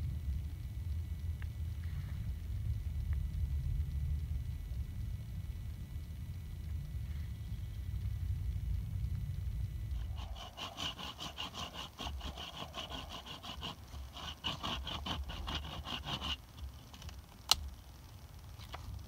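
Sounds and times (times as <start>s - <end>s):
knife shaving wooden stick: 10.0s - 16.7s.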